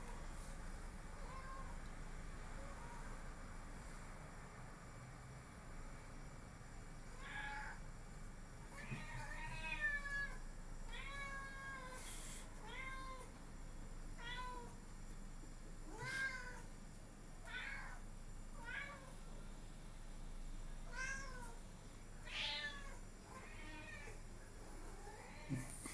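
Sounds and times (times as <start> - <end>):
cat meowing: 22.2 - 24.2.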